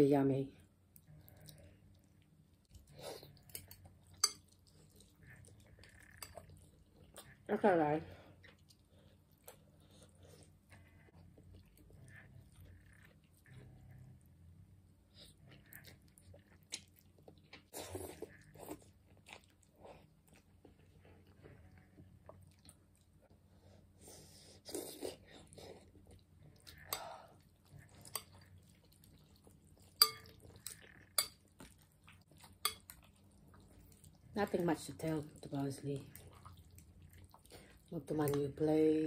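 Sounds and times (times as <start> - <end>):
person slurping and chewing noodles: 1.2 - 7.5, 8.4 - 14.2, 15.1 - 35.2, 36.0 - 37.9
metal fork clinking glass bowl: 3.6 - 4.4, 30.0 - 30.4.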